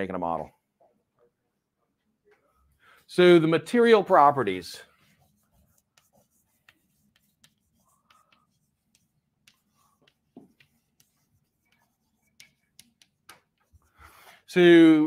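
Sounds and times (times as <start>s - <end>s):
chalk tapping on blackboard: 4.8s - 14.3s.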